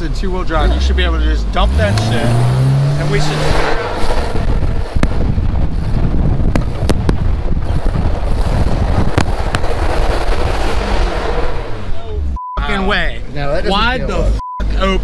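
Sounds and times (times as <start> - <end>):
truck engine pulling: 0.0 - 14.0
wind buffeting microphone: 2.3 - 12.4.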